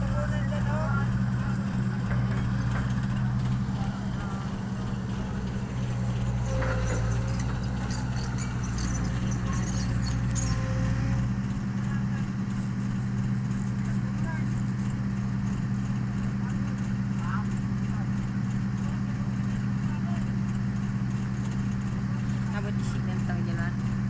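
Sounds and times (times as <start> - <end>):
diesel engine running: 0.0 - 24.0
light clicking and rattling: 0.2 - 11.2.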